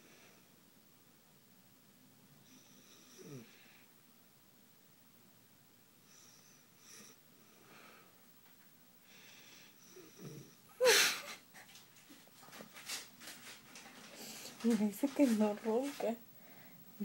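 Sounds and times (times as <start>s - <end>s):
woman snoring: 2.6s - 3.8s
woman breathing wheezily: 10.7s - 11.8s.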